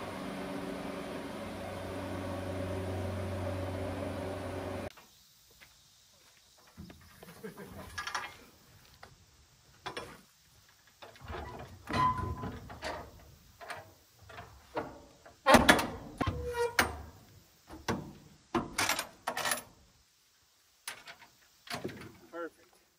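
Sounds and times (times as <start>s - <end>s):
metal door clanking: 11.2s - 13.1s, 14.8s - 17.1s.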